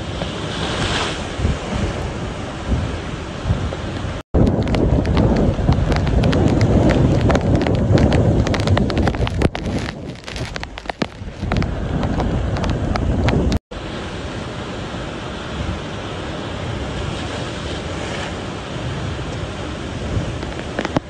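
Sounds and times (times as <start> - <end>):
wind gusting against microphone: 0.0 - 21.0
raindrops ticking on microphone: 4.4 - 13.6, 20.4 - 21.0.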